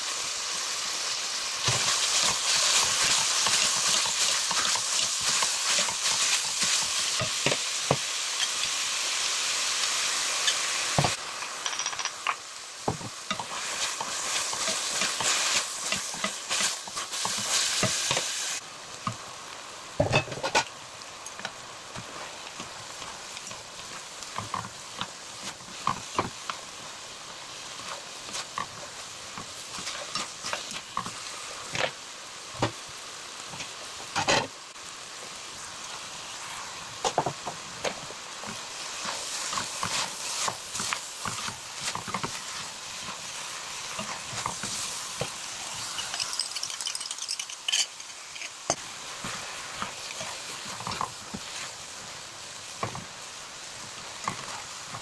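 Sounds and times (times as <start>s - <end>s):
noodles sizzling in a frying pan: 0.0s - 55.0s
utensils scraping and clicking on pan: 43.9s - 51.6s.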